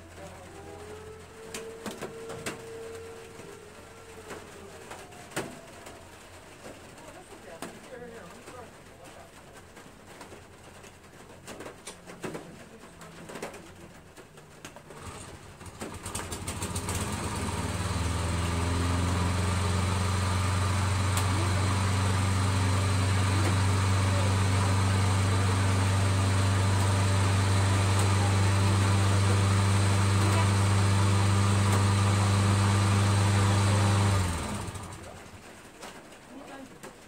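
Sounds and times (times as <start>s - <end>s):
lawn mower engine running: 14.9s - 35.4s.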